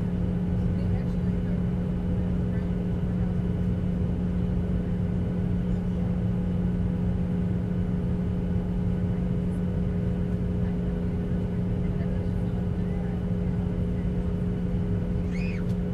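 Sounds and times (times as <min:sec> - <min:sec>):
airliner cabin drone: 0:00.0 - 0:15.9.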